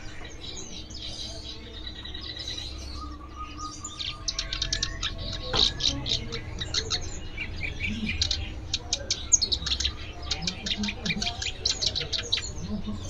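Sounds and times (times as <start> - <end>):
songbirds chirping: 0.0 - 13.0.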